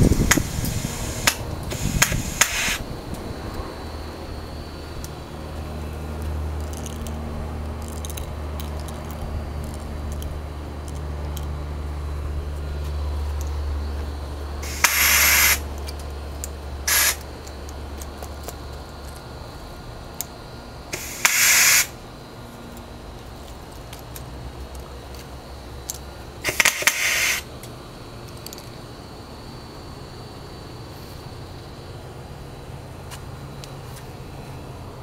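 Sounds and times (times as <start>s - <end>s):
air gun hissing blasts: 0.0s - 2.9s, 14.6s - 15.7s, 16.9s - 17.3s, 20.9s - 22.0s, 26.4s - 27.5s.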